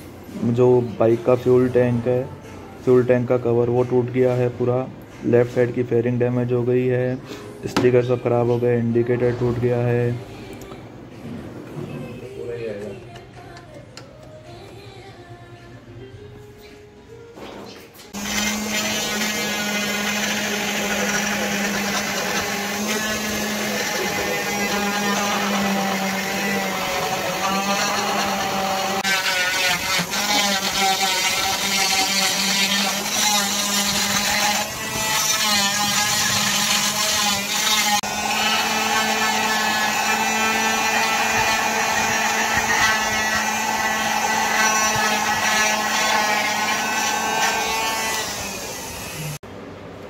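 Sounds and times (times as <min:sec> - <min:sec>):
cast saw motor whine: 0:18.2 - 0:49.4.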